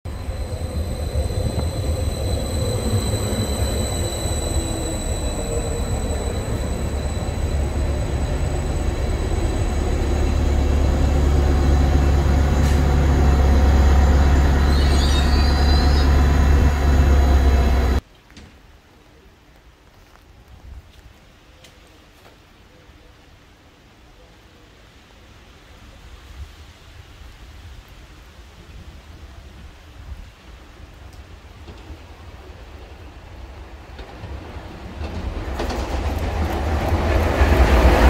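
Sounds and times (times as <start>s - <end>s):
high steady whine: 0.1s - 18.0s
low diesel drone: 0.1s - 18.0s
train wheels on rails: 0.1s - 18.0s, 31.0s - 38.0s.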